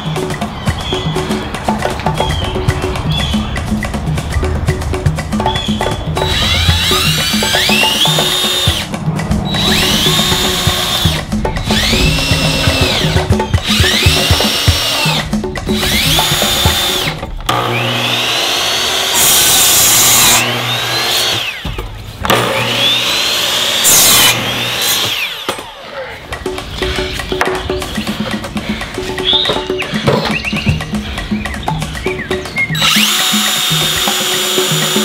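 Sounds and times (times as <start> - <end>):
background music: 0.0 - 35.0
miter saw cutting wood: 6.2 - 25.9, 32.8 - 35.0
power drill driving screws: 15.9 - 21.6, 32.8 - 35.0.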